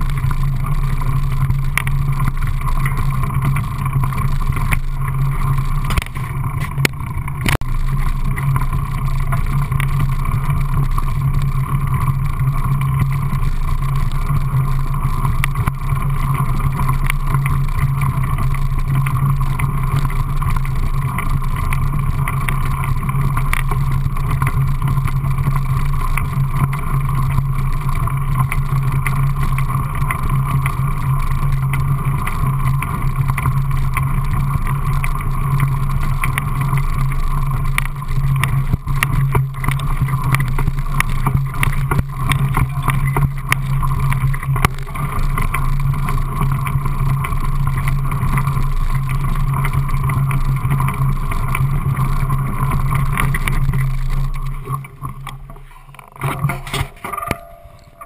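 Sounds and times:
tyres rolling on gravel: 0.0 - 58.0.

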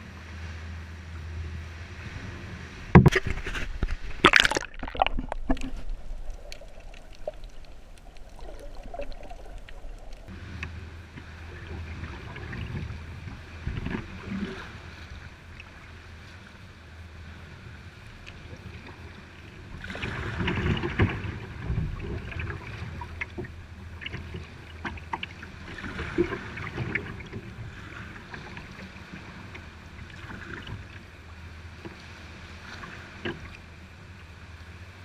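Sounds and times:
water sloshing around kayak: 0.0 - 35.0.

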